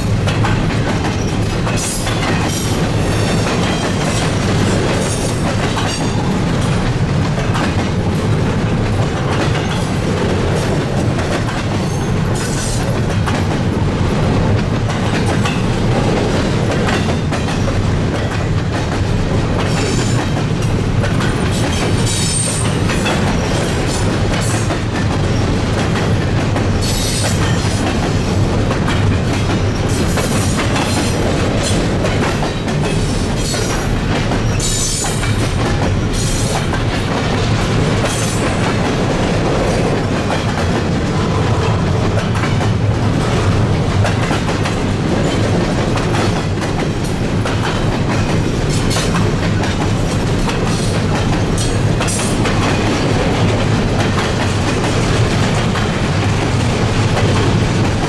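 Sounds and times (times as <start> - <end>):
train wheels clattering over rails: 0.0 - 58.0.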